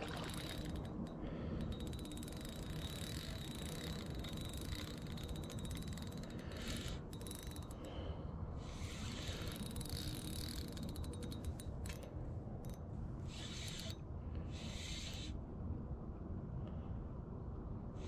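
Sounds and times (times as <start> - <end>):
fishing reel gears ticking: 0.0 - 8.0, 8.6 - 14.0.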